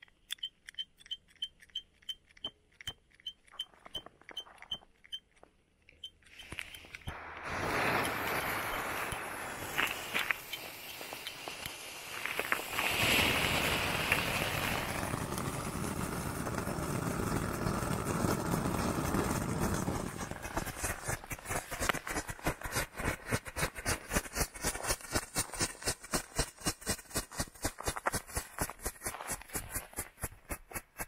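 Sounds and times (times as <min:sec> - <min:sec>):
firework popping rapidly: 0:06.3 - 0:31.0
fountain firework hissing: 0:07.1 - 0:24.9.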